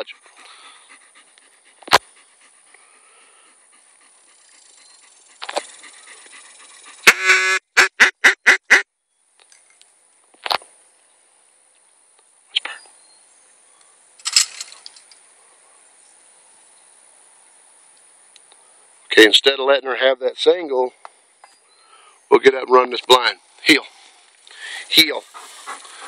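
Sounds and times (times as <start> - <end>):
duck call quacks: 7.1 - 8.8.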